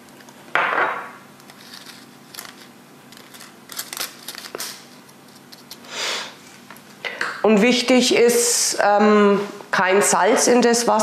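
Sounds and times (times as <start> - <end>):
spices rustling: 1.4 - 5.9.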